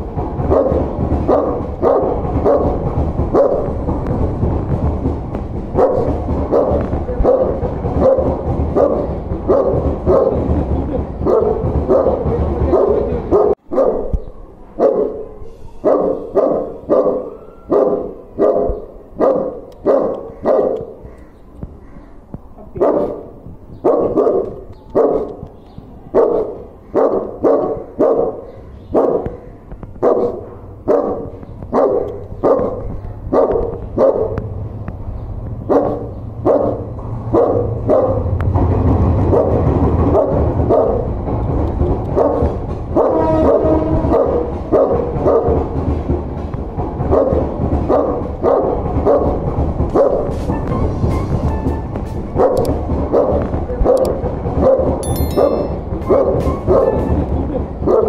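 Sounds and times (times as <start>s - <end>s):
large dog barking: 0.4s - 3.9s, 5.7s - 10.6s, 11.2s - 21.2s, 22.6s - 34.4s, 35.6s - 38.4s, 39.2s - 41.2s, 42.0s - 45.9s, 47.0s - 50.4s, 52.4s - 57.0s, 57.8s - 58.0s.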